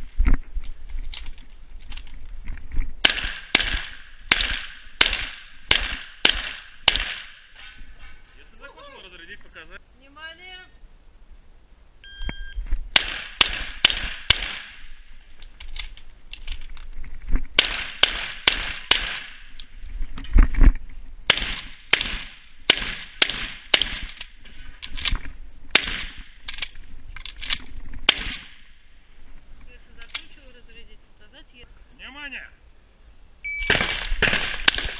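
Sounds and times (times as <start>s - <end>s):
rapid shotgun shots echoing: 3.0s - 7.5s, 12.9s - 14.8s, 17.6s - 19.4s, 21.3s - 24.2s, 25.7s - 26.2s, 28.1s - 28.6s, 33.7s - 34.9s
shot timer beep: 12.0s - 12.6s, 33.4s - 33.8s.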